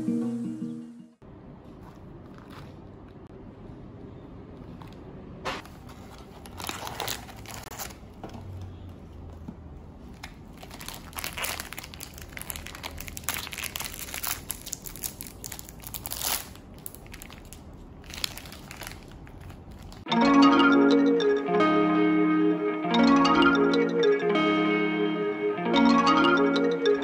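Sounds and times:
foil wrapper tearing and crackling: 0:06.4 - 0:08.0, 0:10.5 - 0:20.1.

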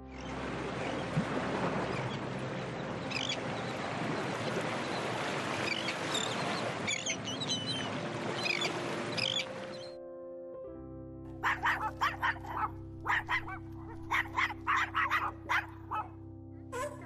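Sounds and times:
rush of water and wind: 0:00.0 - 0:10.0
gull calls: 0:05.6 - 0:09.9, 0:11.4 - 0:16.1.

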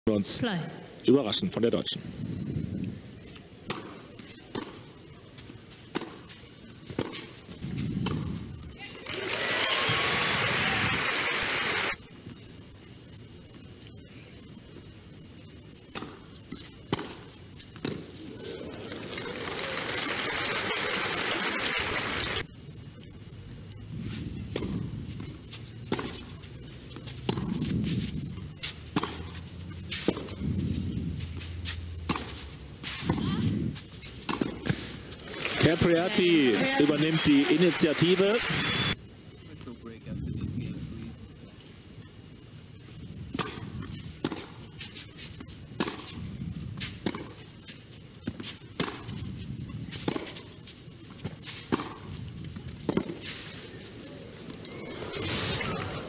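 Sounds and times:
low steady background noise: 0:00.1 - 0:56.0
tennis racket hitting ball: 0:03.7 - 0:04.8, 0:05.9 - 0:06.2, 0:06.9 - 0:08.3, 0:16.9 - 0:18.1, 0:24.5 - 0:26.3, 0:26.9 - 0:30.4, 0:31.2 - 0:35.0, 0:45.8 - 0:46.2, 0:46.8 - 0:47.4, 0:48.2 - 0:49.2, 0:49.9 - 0:50.6, 0:51.2 - 0:52.1, 0:52.9 - 0:53.5.

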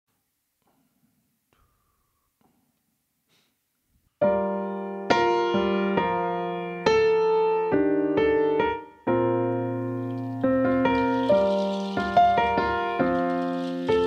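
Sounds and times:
piano playing sustained chords: 0:04.3 - 0:14.0.

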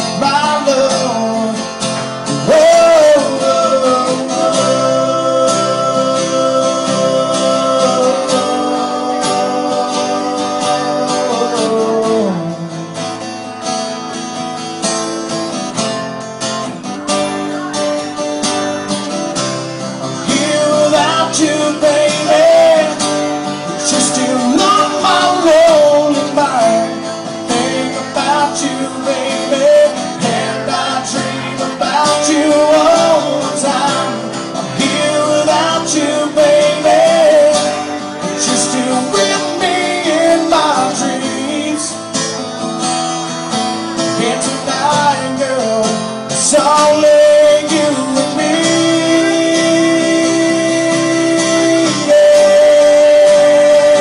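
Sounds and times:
acoustic guitar: 0:00.0 - 0:54.0
live country music: 0:00.0 - 0:54.0.

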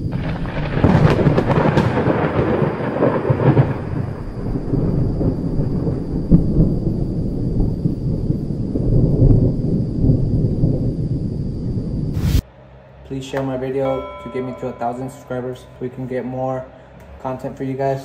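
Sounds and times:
sharp thunderclap: 0:00.0 - 0:12.4
thunder crash and rumble: 0:00.0 - 0:12.4.

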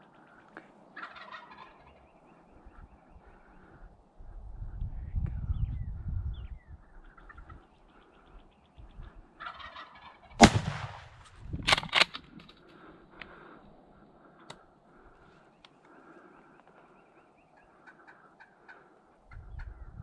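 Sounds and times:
turkey gobbling: 0:00.9 - 0:02.1, 0:07.0 - 0:07.7, 0:09.3 - 0:10.6, 0:17.6 - 0:19.8.

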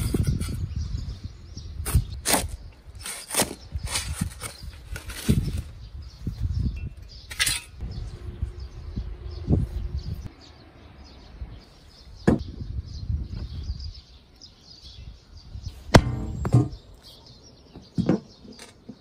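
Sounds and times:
dull thud: 0:15.9 - 0:16.8
sharp ringing knock: 0:16.0 - 0:16.8.

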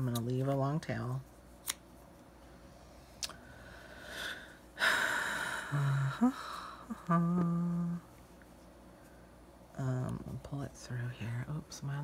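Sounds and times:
woman breathing loudly: 0:03.4 - 0:06.9
woman humming: 0:04.8 - 0:08.1.

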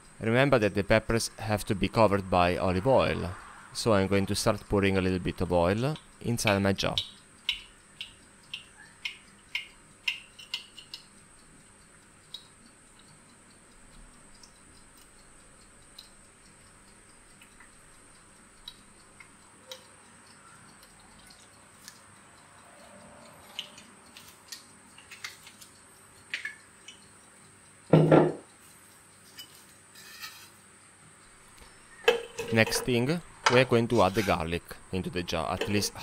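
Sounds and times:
knife knocking on board: 0:27.9 - 0:28.4
knife tapping wooden cutting board: 0:35.6 - 0:35.9.

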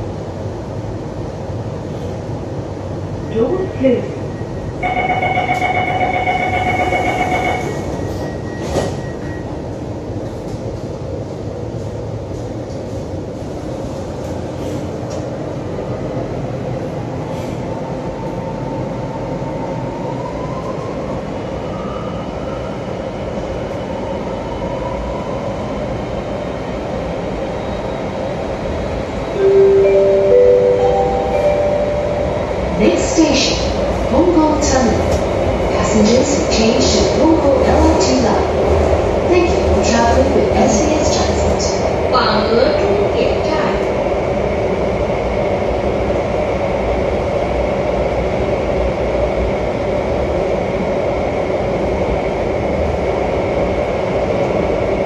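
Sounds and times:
train running noise: 0:00.0 - 0:55.0
door-closing warning tone: 0:04.8 - 0:09.5
chime of a few notes: 0:29.4 - 0:32.4.

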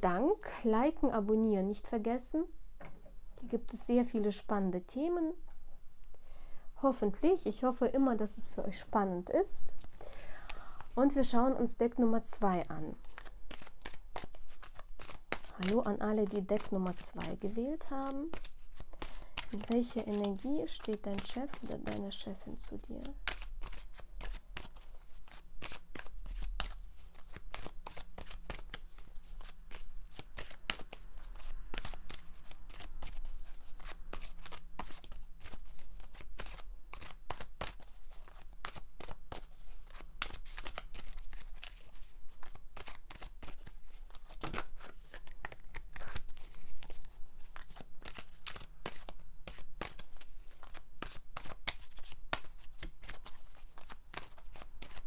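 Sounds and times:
cards being shuffled: 0:12.9 - 0:55.0.

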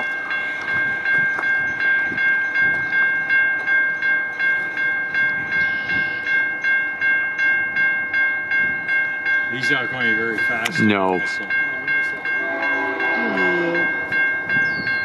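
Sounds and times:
railway crossing bell ringing: 0:00.0 - 0:15.0
diesel freight train rumble: 0:08.4 - 0:15.0.

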